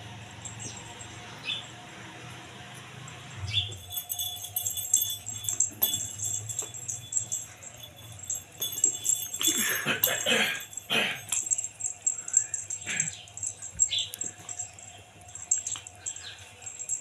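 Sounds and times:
bell in toy ball rattling: 3.5s - 17.0s.

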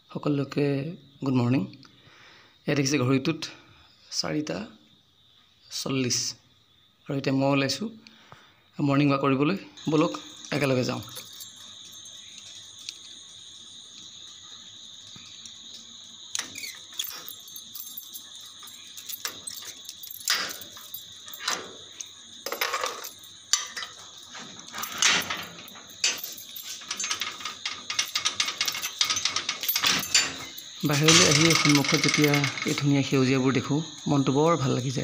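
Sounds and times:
keys jangling: 10.4s - 12.9s, 16.4s - 32.8s
padlock on metal gate clicking: 16.4s - 24.0s, 24.7s - 33.0s.

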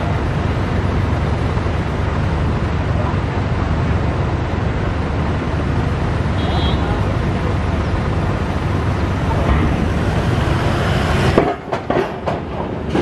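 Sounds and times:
vehicle engines rumbling: 0.0s - 13.0s
tyres clanking over steel ramp: 8.6s - 13.0s.

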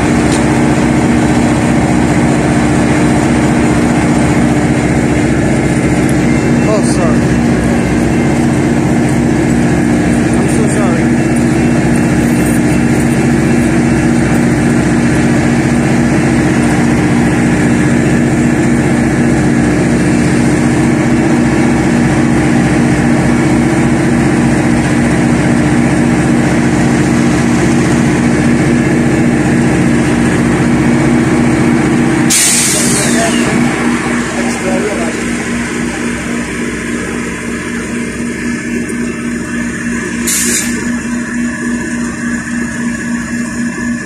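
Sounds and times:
diesel locomotive engine drone: 0.0s - 44.0s
short sharp hiss: 32.3s - 33.2s, 40.3s - 40.8s.

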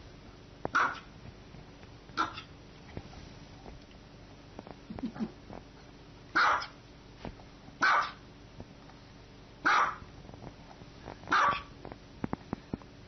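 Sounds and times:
small dog barking: 0.7s - 1.1s, 2.2s - 2.5s, 6.3s - 6.8s, 7.8s - 8.2s, 9.6s - 10.1s, 11.3s - 11.7s.

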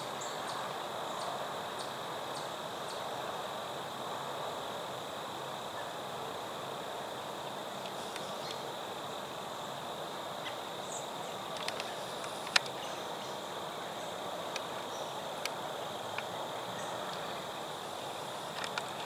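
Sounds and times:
crickets and insects droning: 0.0s - 19.0s
sharp clicks: 11.5s - 12.8s, 18.5s - 19.0s.

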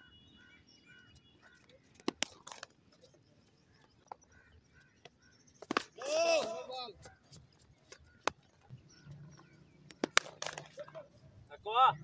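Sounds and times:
bat striking ball: 9.9s - 10.7s.

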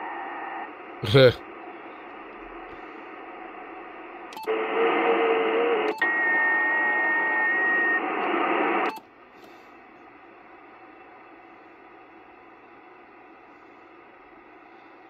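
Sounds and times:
whistling radio tones: 0.0s - 2.2s, 4.4s - 9.0s
radio static hiss: 0.0s - 8.9s.

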